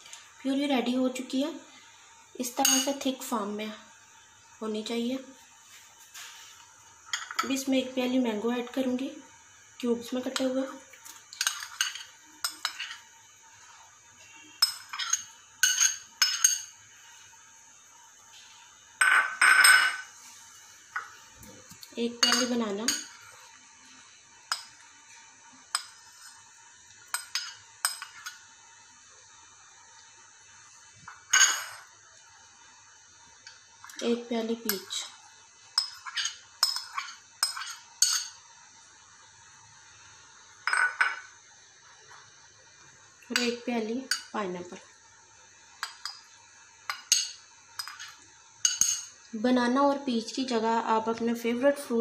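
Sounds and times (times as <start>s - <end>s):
spoon clinking on glass bowl: 14.6s - 16.7s, 19.0s - 20.1s, 22.2s - 23.2s, 31.3s - 31.9s, 35.8s - 38.4s, 40.6s - 41.3s, 45.8s - 46.3s, 46.9s - 49.2s.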